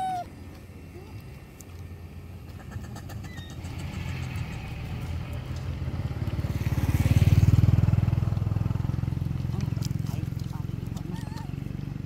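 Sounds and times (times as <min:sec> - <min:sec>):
motorcycle engine passing: 0:02.5 - 0:12.0.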